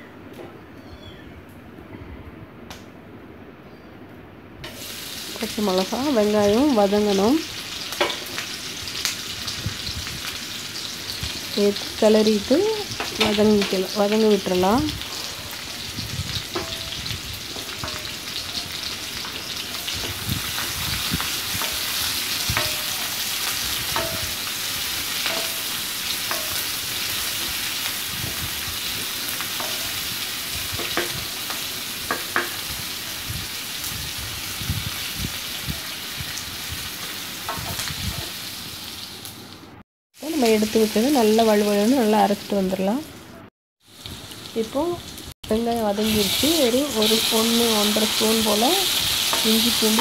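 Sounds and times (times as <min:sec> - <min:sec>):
onions sizzling in hot oil: 0:04.6 - 0:43.2, 0:43.8 - 0:50.0
spoon scraping and knocking pan: 0:16.5 - 0:18.2, 0:21.5 - 0:24.5, 0:25.2 - 0:26.7, 0:29.6 - 0:29.9, 0:30.8 - 0:32.6.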